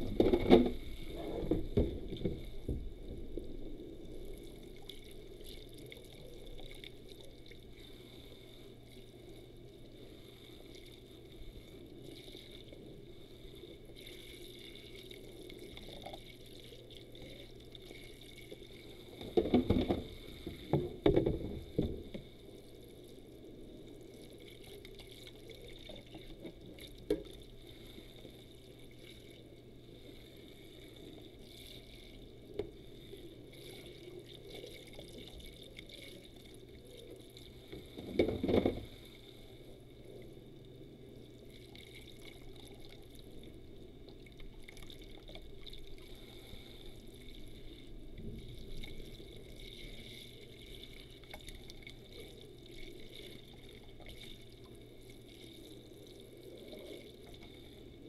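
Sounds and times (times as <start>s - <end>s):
tap water running and splashing: 48.6s - 56.0s.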